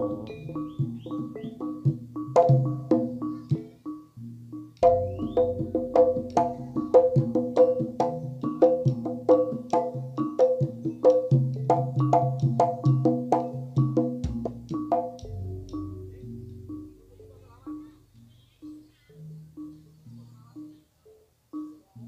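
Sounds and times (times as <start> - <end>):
gamelan music: 0.0 - 22.0
drum hits: 4.8 - 16.9.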